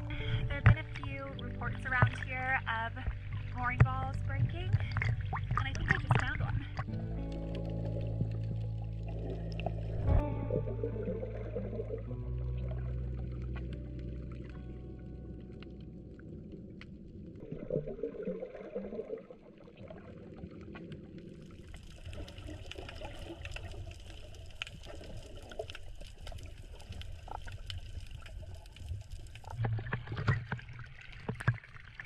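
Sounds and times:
muffled underwater gurgling: 0.0s - 23.9s.

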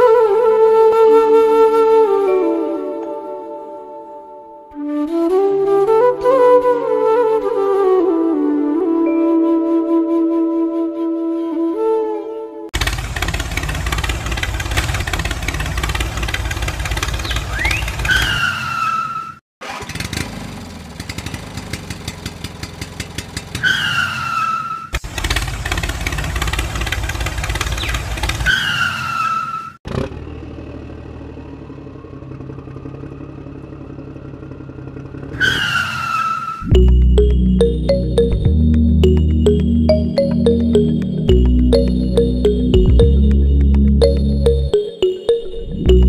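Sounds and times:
tractor engine running: 12.8s - 18.3s, 19.6s - 23.6s, 25.0s - 28.5s.

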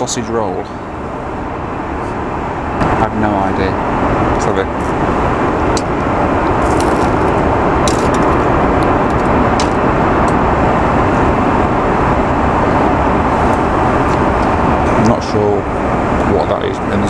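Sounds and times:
airliner cabin engine rush: 0.0s - 17.0s
food wrapping crinkling: 6.5s - 10.4s.

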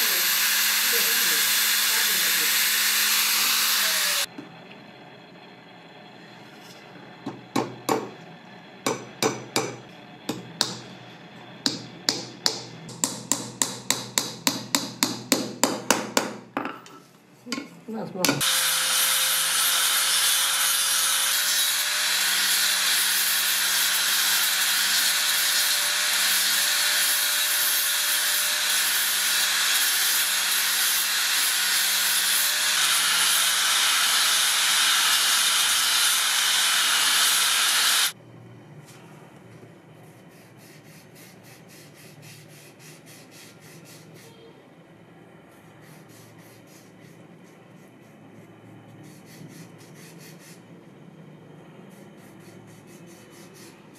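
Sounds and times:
angle grinder sanding wood: 0.0s - 4.3s, 18.4s - 38.2s.

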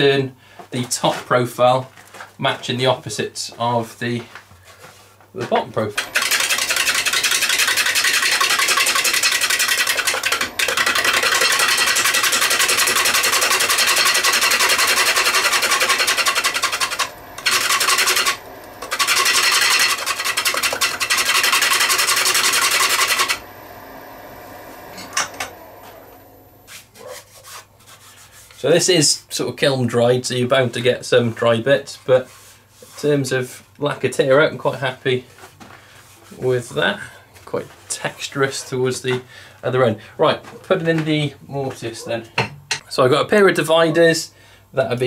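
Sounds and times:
lathe running: 5.7s - 26.9s
gouge cutting wood on lathe: 6.0s - 26.8s.

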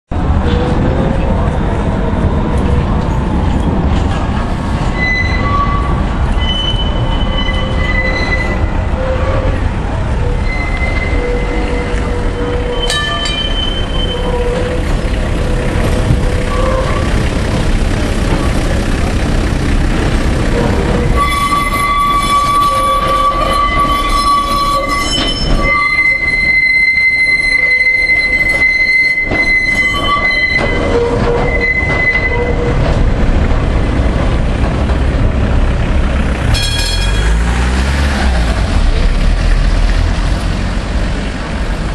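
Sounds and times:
wheels rumbling on rail: 0.1s - 41.9s
tram wheels squealing on curve: 4.0s - 19.2s, 20.1s - 34.1s.

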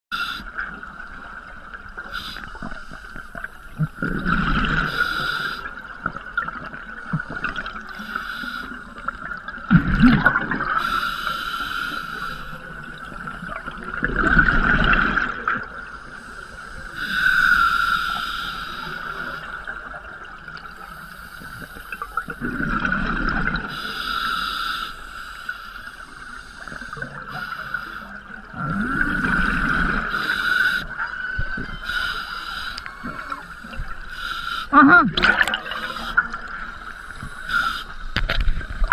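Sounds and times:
exhaled bubbles gurgling: 0.2s - 17.9s, 18.5s - 24.3s, 26.1s - 38.9s
diver breathing through regulator: 4.7s - 5.8s, 7.9s - 9.0s, 10.8s - 12.6s, 16.0s - 19.5s, 23.6s - 31.0s, 31.8s - 38.2s.

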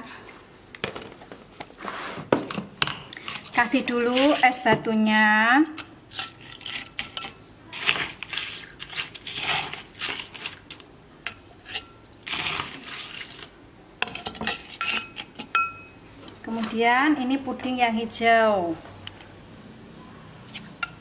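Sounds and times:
spoon scraping crushed ice: 3.2s - 4.6s, 5.8s - 15.5s
glass ringing: 14.8s - 16.0s.

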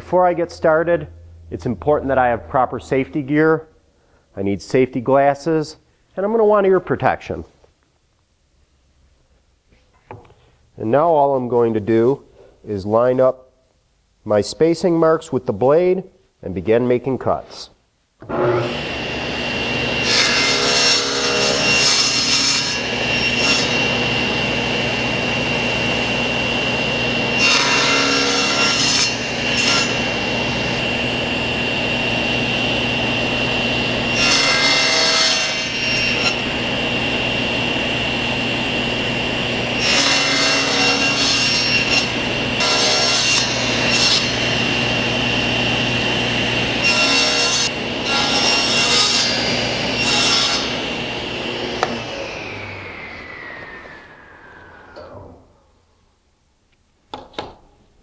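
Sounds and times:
table saw whining: 18.2s - 56.0s
saw blade cutting wood: 18.3s - 32.2s, 32.9s - 36.8s, 39.6s - 54.1s.

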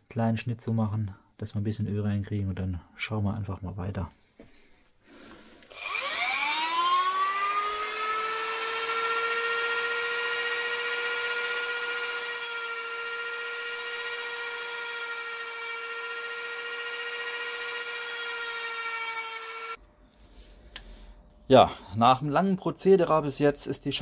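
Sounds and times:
rotary tool high whine: 5.7s - 19.8s.

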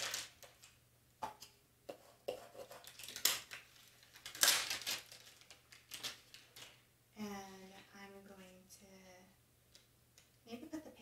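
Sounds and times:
plastic sheet rustling: 0.0s - 0.7s, 2.8s - 6.9s.

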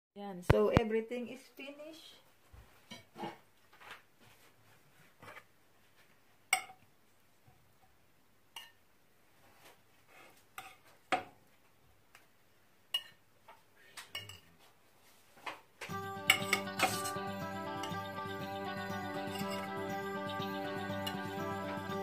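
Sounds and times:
cutlery clinking against dishes: 12.9s - 13.2s, 14.1s - 14.5s, 16.3s - 17.2s
music: 15.9s - 22.0s.

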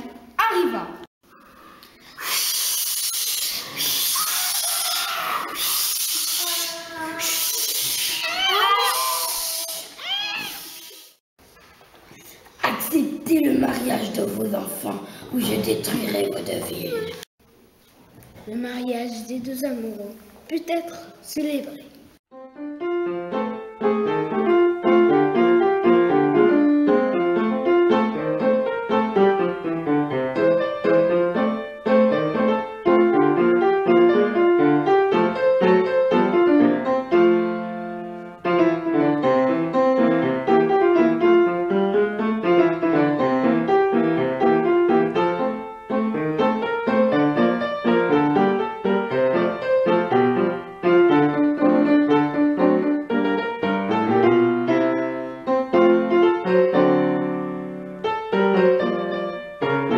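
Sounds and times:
piano music: 22.3s - 59.9s.

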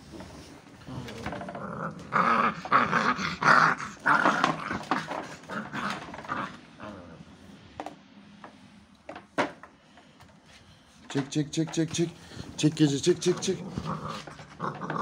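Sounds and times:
puppies growling: 0.4s - 7.6s, 13.1s - 15.0s.

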